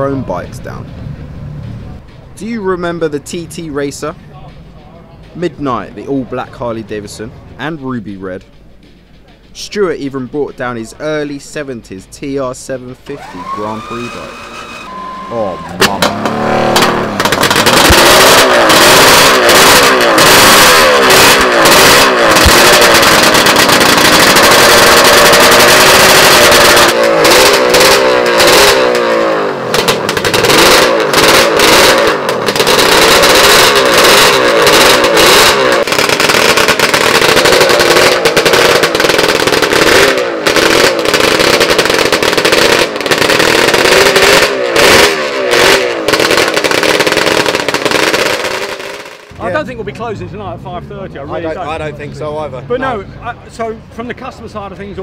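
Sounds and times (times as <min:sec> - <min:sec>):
exhaust cracks: 0:00.0 - 0:51.4
racing engine revving: 0:12.9 - 0:52.9.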